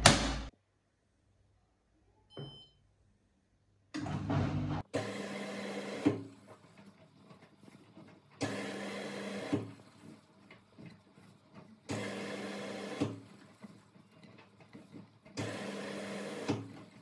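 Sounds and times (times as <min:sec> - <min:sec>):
washing machine drum motor humming: 0:04.0 - 0:17.0.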